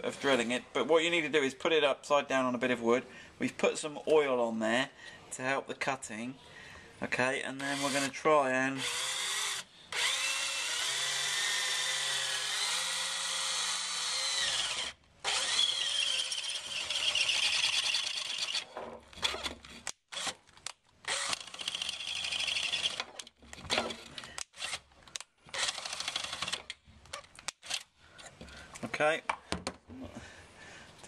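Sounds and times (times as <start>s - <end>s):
power drill cutting metal: 7.6s - 8.1s, 8.8s - 18.7s, 21.1s - 23.1s
drill bit squealing against metal: 14.2s - 18.7s.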